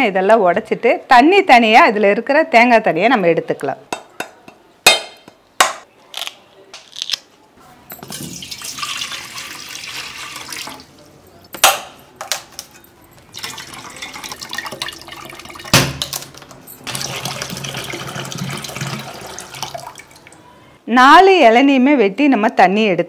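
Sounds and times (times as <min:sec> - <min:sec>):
water pouring into steel pot: 0:08.1 - 0:11.0, 0:13.3 - 0:15.8, 0:16.9 - 0:20.4.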